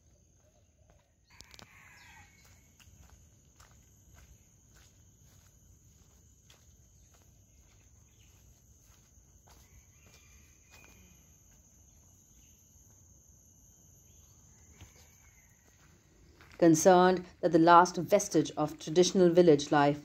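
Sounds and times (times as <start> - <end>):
high-pitched insect drone: 1.4 - 16.6.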